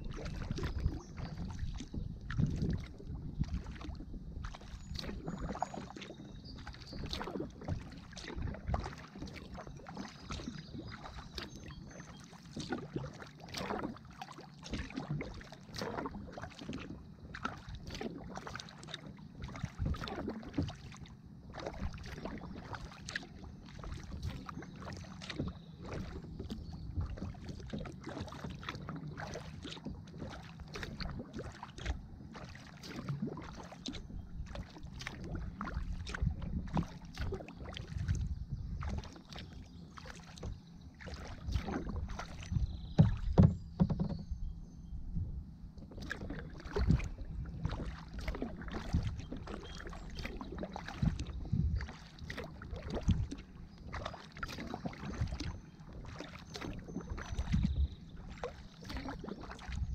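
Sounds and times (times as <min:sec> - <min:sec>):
wind rumble on microphone: 0:00.0 - 0:14.0, 0:14.7 - 0:59.9
water splashing around kayak: 0:00.0 - 0:59.9.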